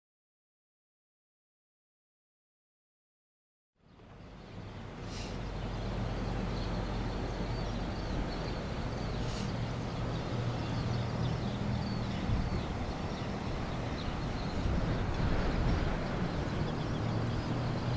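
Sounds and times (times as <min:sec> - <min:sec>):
small birds chirping: 0:03.8 - 0:17.9.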